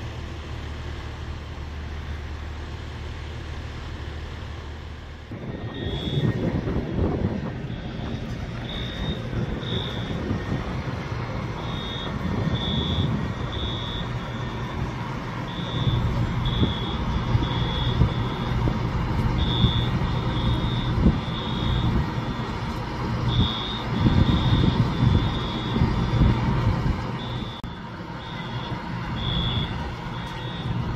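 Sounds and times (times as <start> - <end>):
large engine rumbling: 0.0 - 30.9
high-pitched electronic beeps: 5.4 - 6.6, 7.6 - 10.7, 11.5 - 14.7, 15.5 - 18.6, 19.4 - 22.4, 23.2 - 26.2, 27.2 - 30.8.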